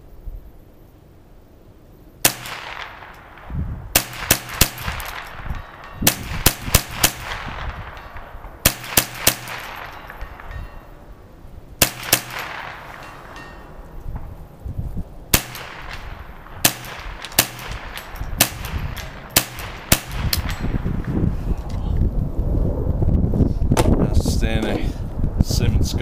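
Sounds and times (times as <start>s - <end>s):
rifle gunshots: 2.2s - 10.8s, 11.8s - 13.7s, 15.3s - 20.9s.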